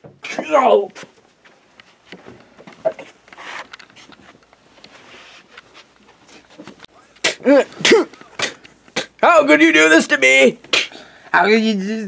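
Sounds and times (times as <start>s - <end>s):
faint rustling: 0.8s - 7.2s
person groaning in pain: 7.3s - 8.5s.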